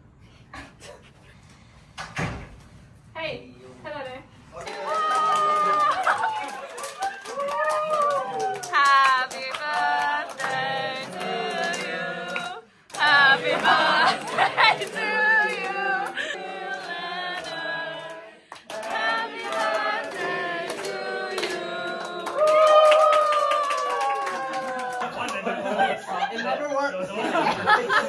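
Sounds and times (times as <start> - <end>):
people clapping in time: 4.6 - 17.6, 18.5 - 25.8
group singing in unison: 8.8 - 22.6.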